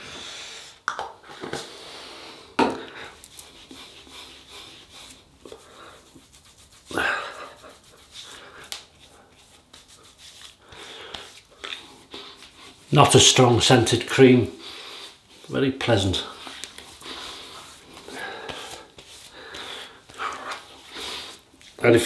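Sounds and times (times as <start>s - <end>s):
breathing: 0.0s - 3.2s, 10.6s - 12.5s, 14.6s - 15.2s, 17.0s - 21.4s
hands rubbing cream on skin: 2.9s - 22.0s.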